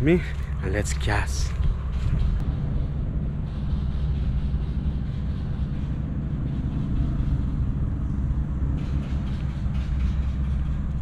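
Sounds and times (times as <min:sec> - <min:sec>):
drainage pump engine drone: 0:00.0 - 0:11.0.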